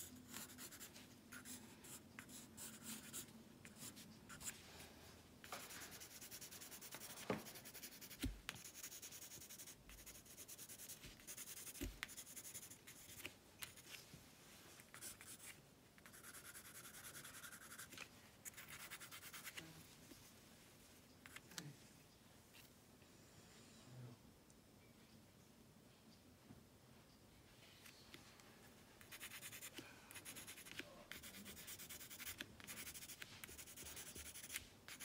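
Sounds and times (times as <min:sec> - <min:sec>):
pencil scratching on paper: 0:00.0 - 0:04.6, 0:05.4 - 0:13.9, 0:14.9 - 0:19.6, 0:29.0 - 0:35.0.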